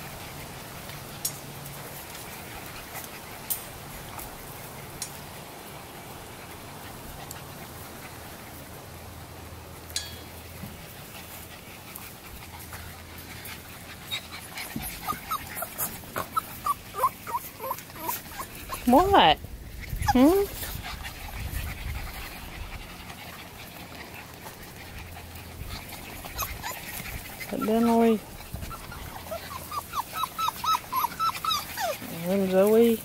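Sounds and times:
puppies panting: 0:00.0 - 0:33.0
puppy whimpers: 0:14.1 - 0:21.2, 0:25.6 - 0:32.8.

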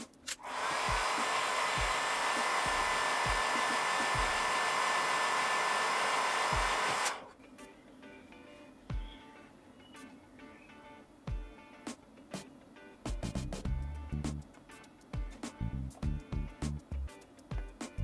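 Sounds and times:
heat gun blowing hot air: 0:00.4 - 0:07.3.

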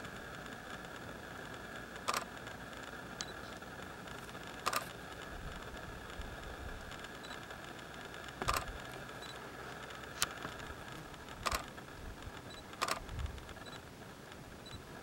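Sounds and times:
camera shutter clicks: 0:02.0 - 0:02.5, 0:04.3 - 0:05.2, 0:08.2 - 0:09.4, 0:11.2 - 0:13.8.

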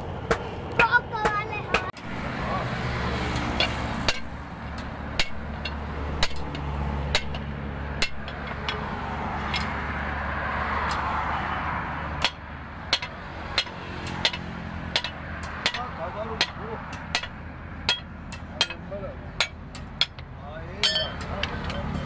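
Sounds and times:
hammer striking metal on anvil: 0:03.6 - 0:08.9, 0:12.2 - 0:20.2, 0:20.8 - 0:21.8.

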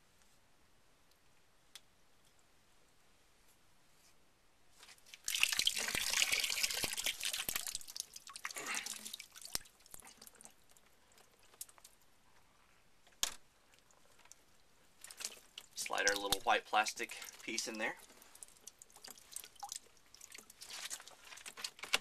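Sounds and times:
plastic tubing crinkling: 0:04.8 - 0:22.0.

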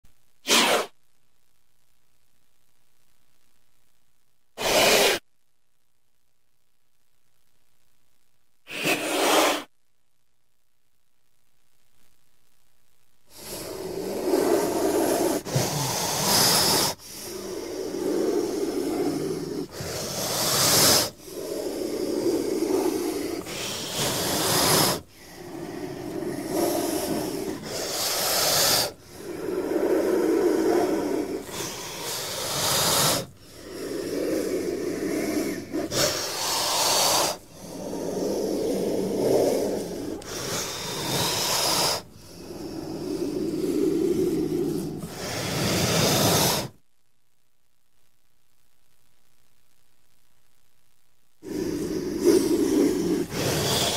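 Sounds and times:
snake hissing: 0:00.4 - 0:00.9, 0:04.6 - 0:05.2, 0:08.7 - 0:09.7, 0:13.3 - 0:46.8, 0:51.4 - 0:53.9.

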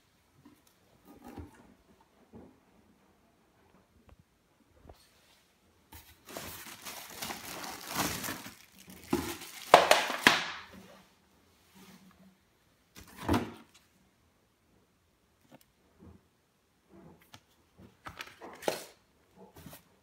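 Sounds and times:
plastic wrap crinkling: 0:06.2 - 0:10.7.

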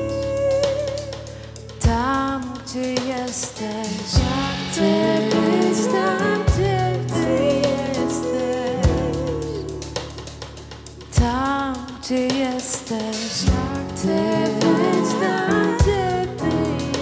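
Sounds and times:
singing with vibrato: 0:00.0 - 0:10.3, 0:11.2 - 0:17.0
band playing worship music: 0:00.0 - 0:17.0
drum hits: 0:04.0 - 0:11.6.

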